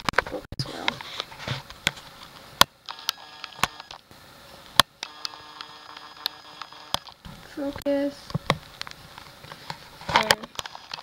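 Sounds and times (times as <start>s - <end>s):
autofocus motor whirring: 2.8s - 4.0s, 5.0s - 7.2s.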